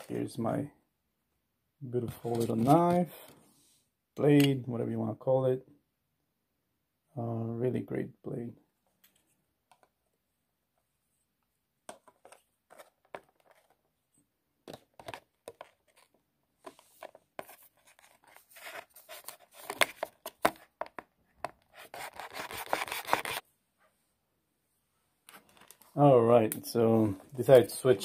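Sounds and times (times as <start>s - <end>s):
knife cutting cardboard box: 21.7s - 23.4s.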